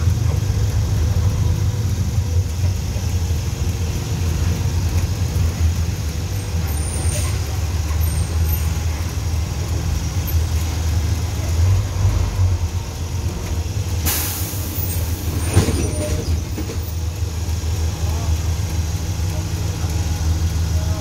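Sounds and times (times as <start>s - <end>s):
bus engine running: 0.0s - 21.0s
air brakes hiss: 13.9s - 16.9s.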